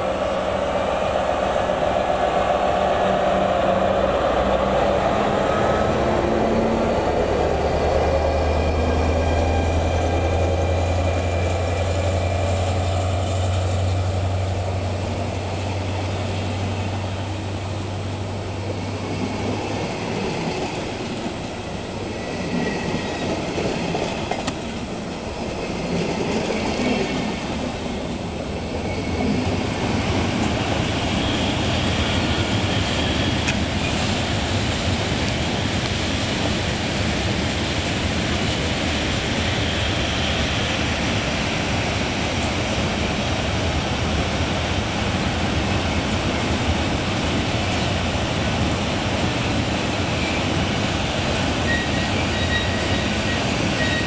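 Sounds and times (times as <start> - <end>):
locomotive engine drone: 0.0 - 25.9
train wheels on rails: 0.0 - 54.0.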